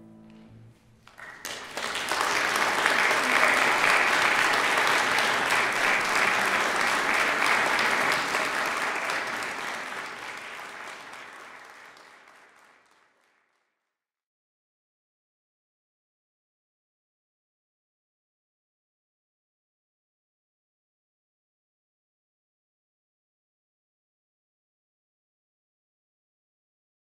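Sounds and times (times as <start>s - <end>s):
audience applauding: 1.0s - 13.6s.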